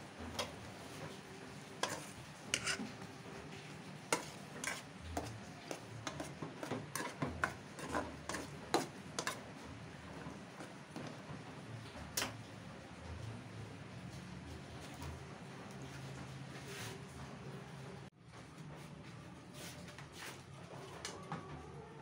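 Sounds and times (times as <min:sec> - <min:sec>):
utensil scraping metal saucepan: 0:01.8 - 0:03.1, 0:04.1 - 0:09.5.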